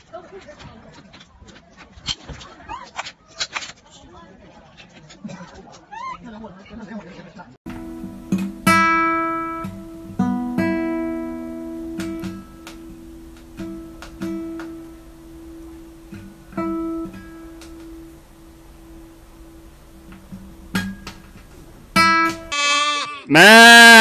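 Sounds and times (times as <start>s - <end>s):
guitar strings plucked: 7.7s - 22.6s.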